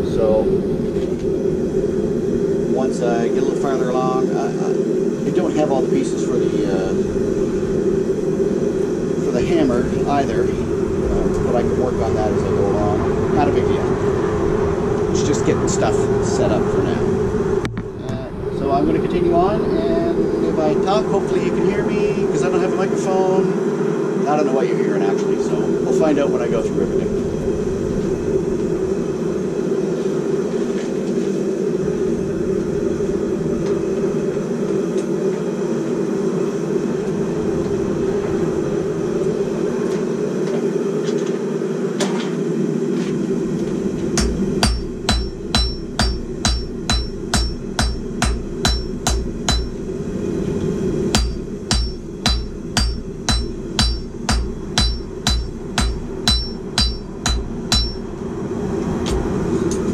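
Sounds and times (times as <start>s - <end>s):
forge burner rushing: 0.0s - 59.9s
hammer striking steel on anvil: 44.2s - 49.8s, 51.1s - 58.1s.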